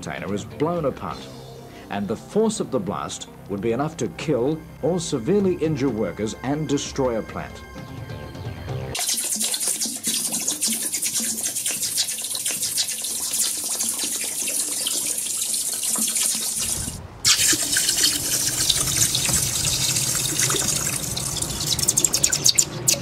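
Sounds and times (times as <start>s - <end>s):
molten metal hissing in water: 9.0s - 23.0s.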